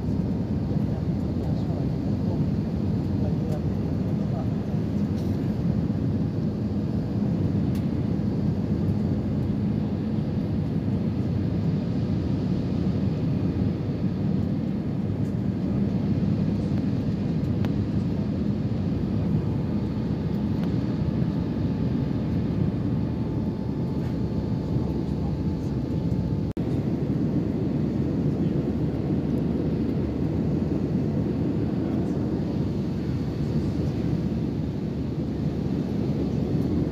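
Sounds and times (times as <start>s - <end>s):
jet airliner cabin rumble: 0.0s - 36.9s.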